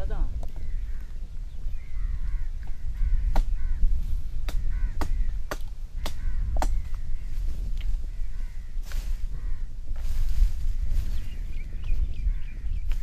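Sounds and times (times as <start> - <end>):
faint bird chirps: 10.9 - 13.0.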